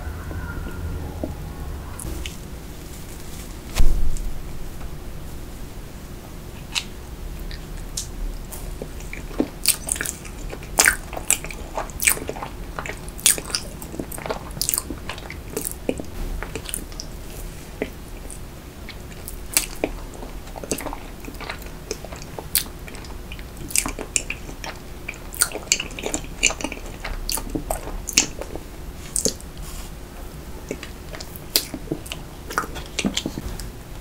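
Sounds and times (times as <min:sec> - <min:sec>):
wet chewing and smacking: 0:06.6 - 0:29.6, 0:30.6 - 0:33.7.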